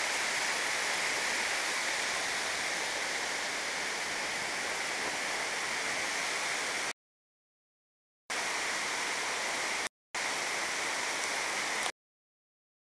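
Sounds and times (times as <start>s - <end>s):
waterfall rushing: 0.0s - 6.9s, 8.4s - 11.9s.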